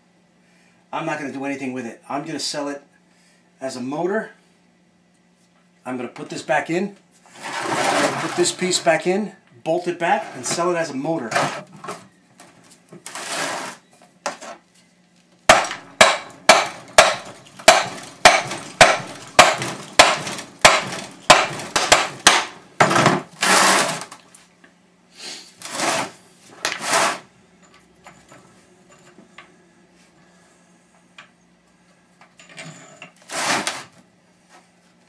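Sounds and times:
hammer striking metal: 15.5s - 22.6s.

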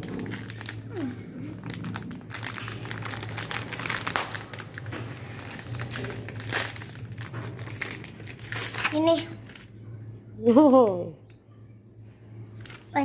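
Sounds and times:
plastic wrapper crinkling: 0.0s - 9.8s.

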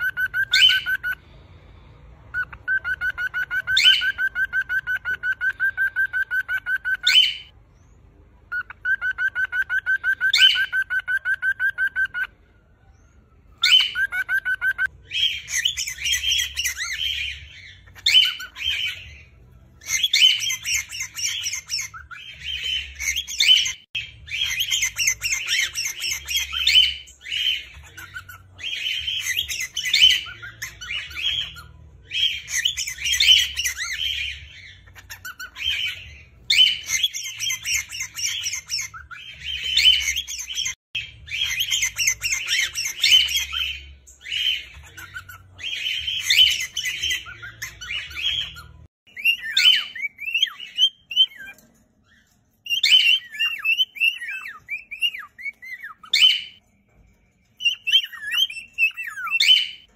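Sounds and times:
cockatiels singing and chattering: 0.0s - 1.2s, 2.2s - 59.9s.

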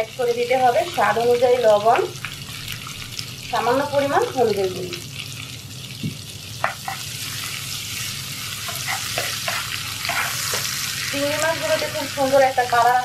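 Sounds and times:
food sizzling in hot oil: 0.0s - 13.0s
wooden spatula scraping pan: 8.6s - 10.7s.

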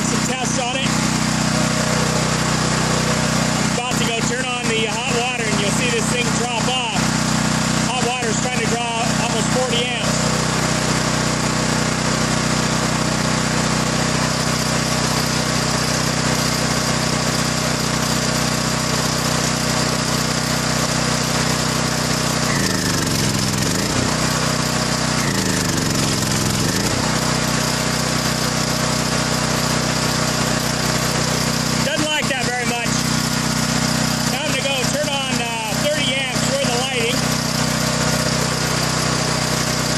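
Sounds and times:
portable generator running: 0.0s - 39.9s.

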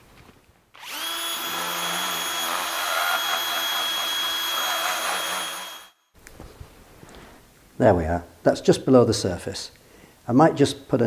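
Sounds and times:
drill motor whine: 0.8s - 6.0s.

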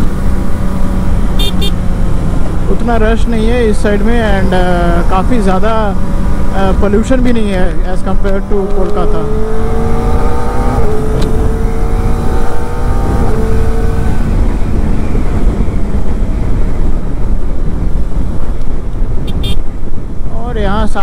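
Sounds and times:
wind rushing on microphone: 0.0s - 21.0s.

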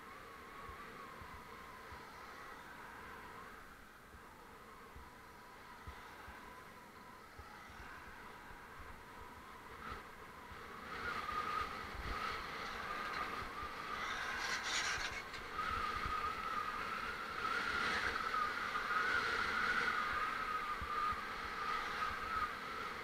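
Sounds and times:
road and traffic noise: 0.0s - 23.0s
high whine: 8.0s - 16.8s.

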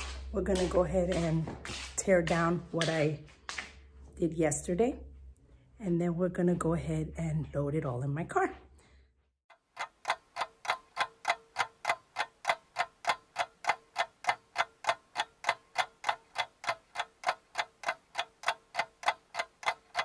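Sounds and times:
rapid clock ticking: 0.0s - 3.2s, 9.5s - 20.0s.

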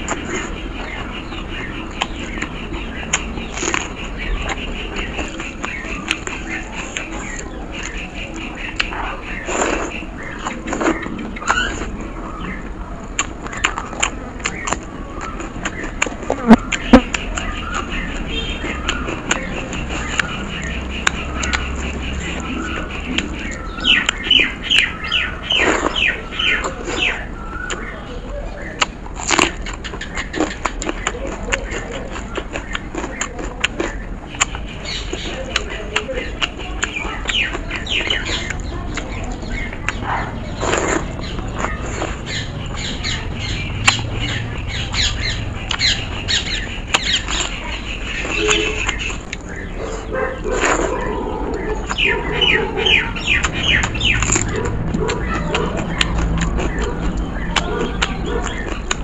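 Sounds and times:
chewing and wet mouth clicks: 0.0s - 59.0s
chickens clucking: 0.0s - 59.0s
loud crunches of chili bitten: 28.8s - 39.9s, 40.5s - 44.0s, 45.7s - 59.0s.

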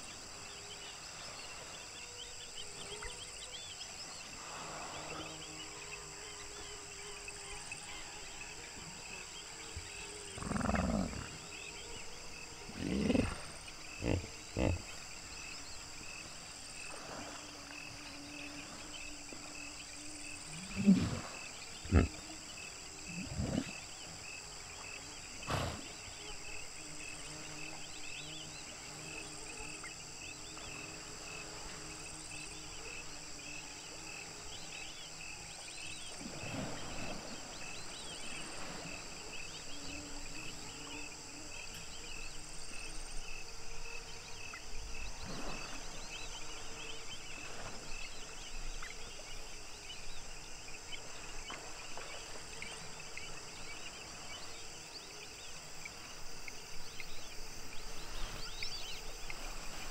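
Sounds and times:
night insects chorus: 0.0s - 59.9s
hippos grunting and honking: 10.2s - 11.7s, 12.3s - 15.0s, 20.6s - 22.4s, 23.0s - 24.0s.

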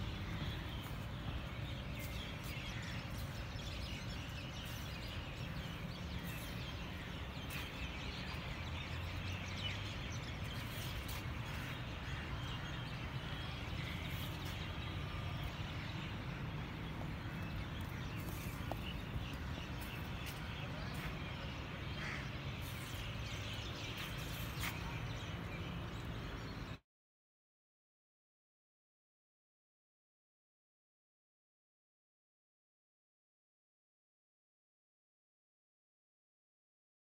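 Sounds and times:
birds chirping: 0.0s - 26.8s.

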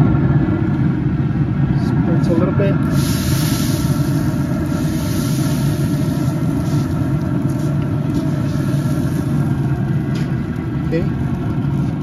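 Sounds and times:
steady low rumble: 0.0s - 12.0s
spray bottle hissing: 2.8s - 10.4s.

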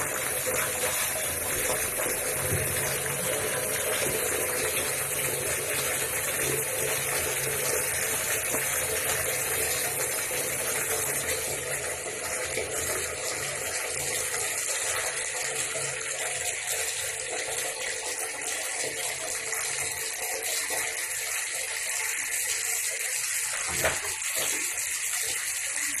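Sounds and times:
tap water running into bathtub: 0.0s - 26.0s.

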